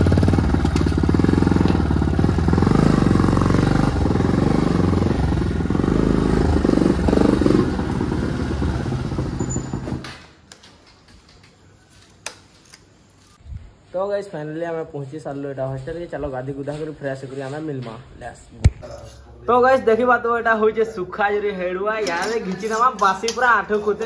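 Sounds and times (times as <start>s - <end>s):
motorcycle engine running: 0.0s - 10.0s.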